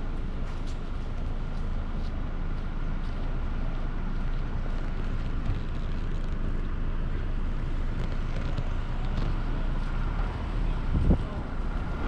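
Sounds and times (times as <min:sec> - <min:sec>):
car engine rumble: 0:00.0 - 0:12.0
tyre noise on road: 0:00.0 - 0:12.0.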